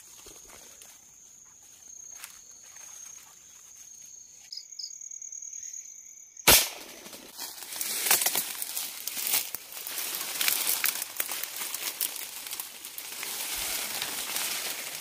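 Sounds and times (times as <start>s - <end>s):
night insects droning: 0.0s - 15.0s
gunshot: 6.4s - 7.3s.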